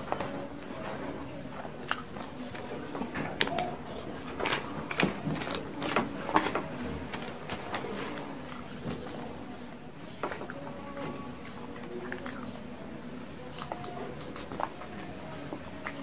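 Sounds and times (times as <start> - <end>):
fingers on paper wrapping: 0.0 - 9.4, 13.4 - 16.0
chewing and lip-smacking: 1.6 - 6.4, 11.4 - 12.7, 13.4 - 16.0.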